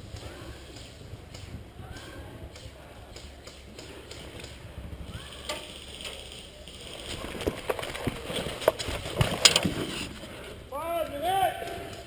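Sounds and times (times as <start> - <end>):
rustling and handling noise: 5.2 - 10.6.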